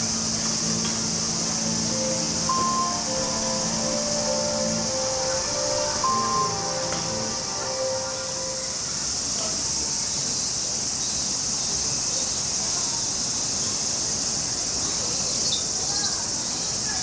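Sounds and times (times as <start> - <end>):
short high chirps: 0.0 - 9.1
insects trilling: 0.0 - 17.0.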